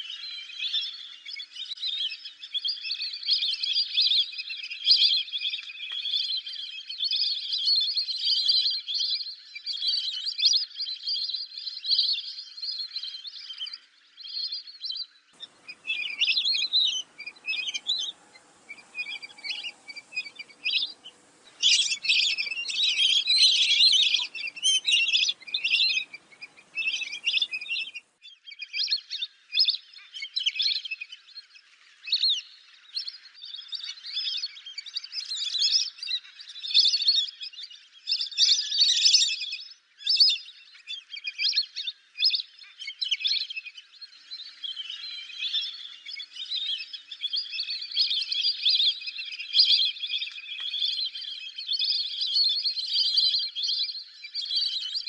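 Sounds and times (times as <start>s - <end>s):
ducks whistling calls: 15.4s - 28.1s.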